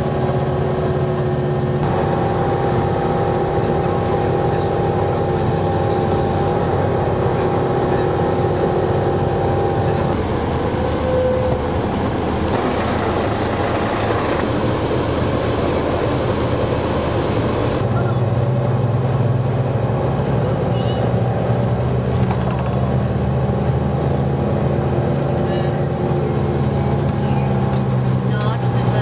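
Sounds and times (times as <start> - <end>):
bus engine drone: 0.0 - 29.0
road noise: 0.0 - 29.0.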